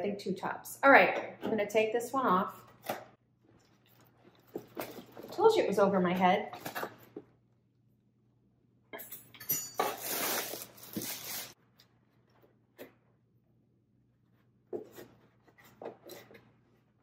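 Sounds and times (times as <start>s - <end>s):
lampshade rustling and scraping: 3.4s - 5.5s.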